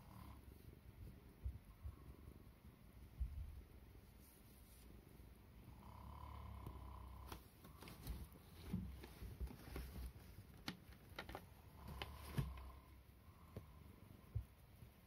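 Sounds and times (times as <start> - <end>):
cat purring: 0.0 - 2.4, 5.1 - 10.3, 11.5 - 15.0.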